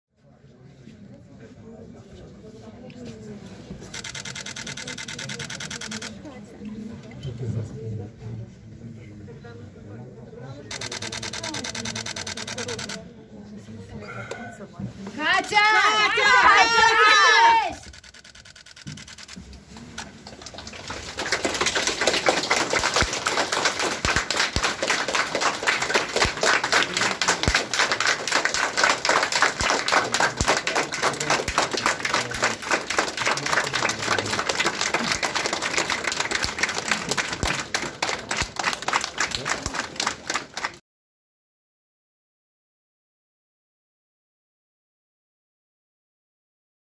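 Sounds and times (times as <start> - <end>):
crowd applauding: 20.0 - 40.8.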